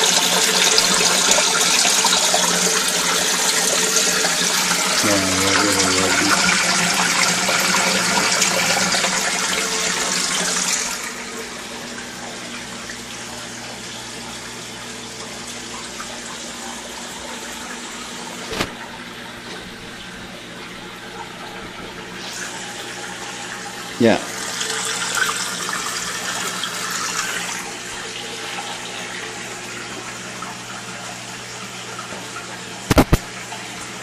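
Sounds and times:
water rushing into aquarium: 0:00.0 - 0:13.6
sharp click: 0:32.9 - 0:33.3.

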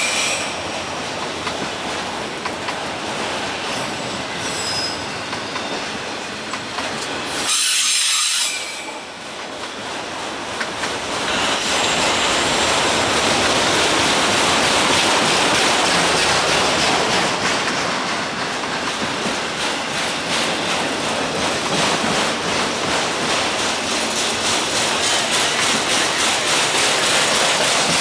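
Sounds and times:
train wheels rushing on rail: 0:00.0 - 0:28.0
wheels clattering over rail joints: 0:08.8 - 0:28.0.

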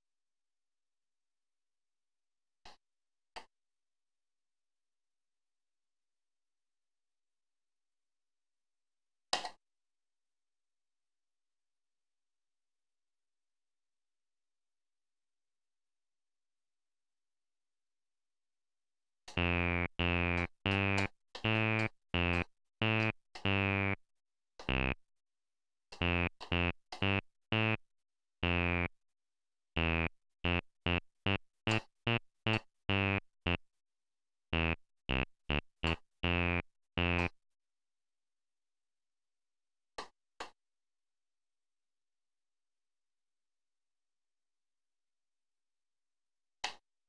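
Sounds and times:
buzzy synthesizer bass notes: 0:19.4 - 0:24.0, 0:24.7 - 0:25.0, 0:26.0 - 0:27.8, 0:28.4 - 0:28.9, 0:29.8 - 0:33.6, 0:34.6 - 0:37.3.

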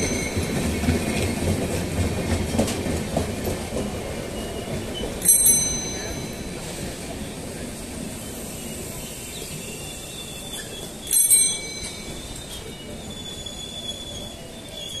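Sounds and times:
train coaches rumbling: 0:00.0 - 0:15.0
high-pitched brake squeal: 0:08.2 - 0:15.0.

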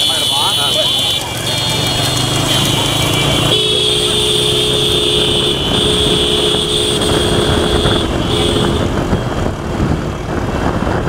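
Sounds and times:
vehicle horn blasts: 0:00.0 - 0:09.3
motorcycle engines: 0:00.0 - 0:11.0
wind rush: 0:06.5 - 0:11.0.

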